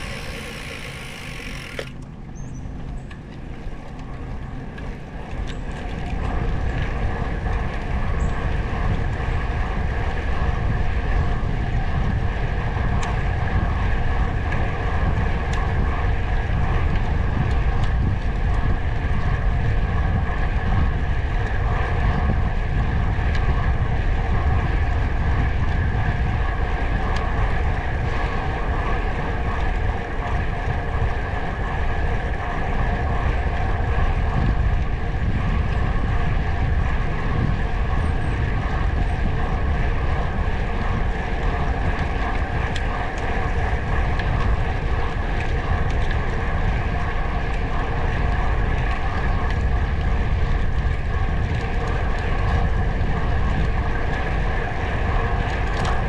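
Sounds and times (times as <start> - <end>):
vehicle engine drone: 0.0 - 22.4
wind rumbling on microphone: 0.0 - 56.0.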